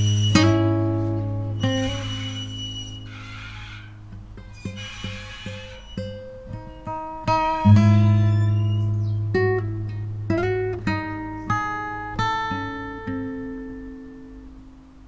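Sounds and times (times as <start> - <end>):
plucked acoustic guitar notes: 0.0 - 2.8, 6.0 - 14.8.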